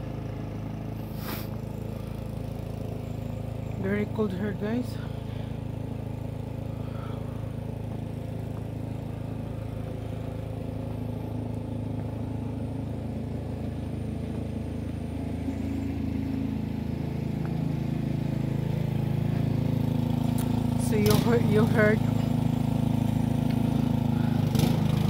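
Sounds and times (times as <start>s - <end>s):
engine humming: 0.0s - 25.0s.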